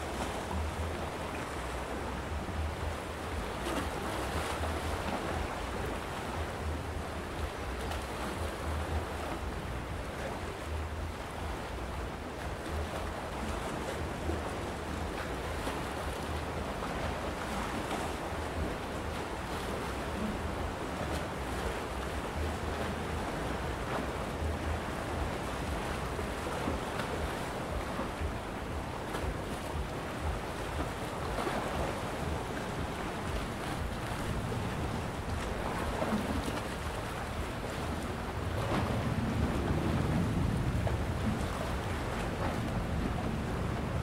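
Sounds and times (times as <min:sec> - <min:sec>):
waves washing against rocks: 0:00.0 - 0:44.0
wind rumble on microphone: 0:00.0 - 0:44.0.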